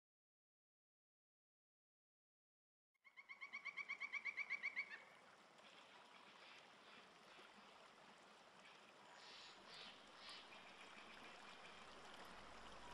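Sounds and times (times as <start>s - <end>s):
faint steady hiss: 4.2s - 12.9s.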